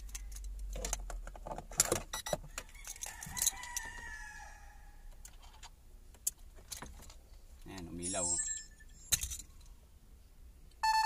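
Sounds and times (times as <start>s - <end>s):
rooster crowing: 2.5s - 5.1s
car keys jangling: 8.0s - 9.7s.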